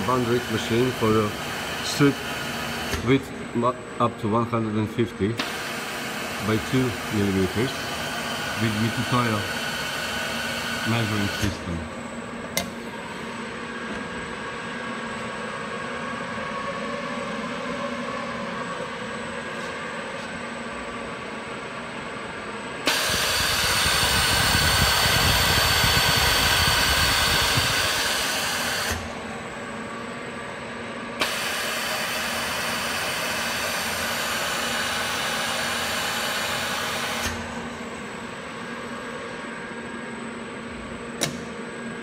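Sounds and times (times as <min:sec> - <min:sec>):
machinery humming: 0:00.0 - 0:42.0
machine click: 0:41.2 - 0:41.5.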